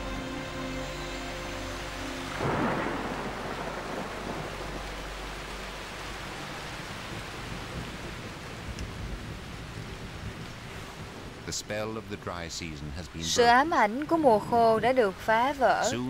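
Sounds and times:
rain falling steadily: 0.0 - 16.0
thunderclap: 2.3 - 5.8, 6.4 - 12.2.

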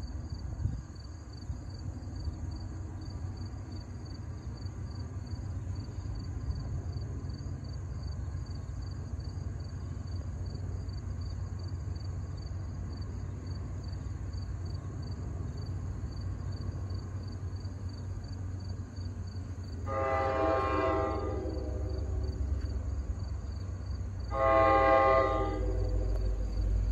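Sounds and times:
train low rumble: 0.0 - 26.9
locomotive air horn chord: 19.8 - 22.9, 24.3 - 26.9
faint pulsing high tone: 19.8 - 23.7, 24.3 - 26.9.

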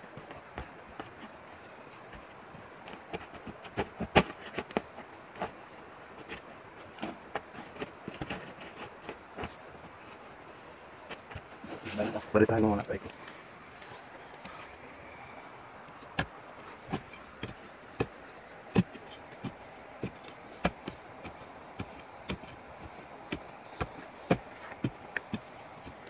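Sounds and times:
digging tool chopping into soil and roots: 15.9 - 26.0.

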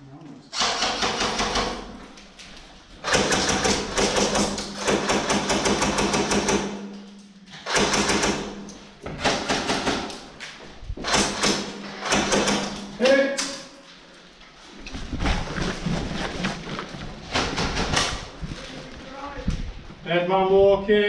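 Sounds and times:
airsoft rifles firing: 0.6 - 2.0, 3.0 - 6.9, 7.6 - 10.3, 11.0 - 13.2.

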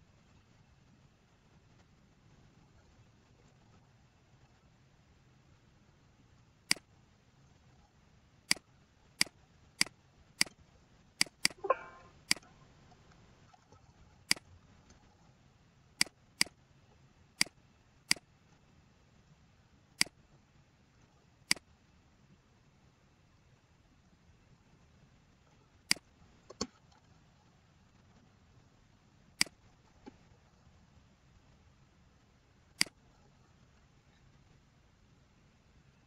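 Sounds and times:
mouse button clicks: 11.2 - 12.4.

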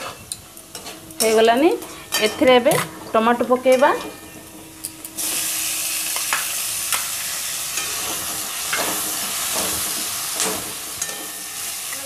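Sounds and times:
vegetables sizzling in hot oil: 4.8 - 12.0.

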